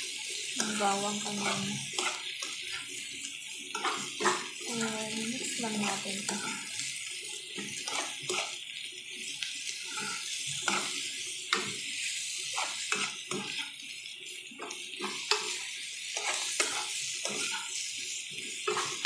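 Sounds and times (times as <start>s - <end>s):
vegetables sizzling in oil: 0.0s - 19.0s
metal spoon scraping pan: 0.6s - 2.9s, 3.7s - 4.6s, 5.2s - 8.6s, 9.7s - 11.8s, 12.4s - 13.8s, 14.6s - 17.8s, 18.6s - 19.0s.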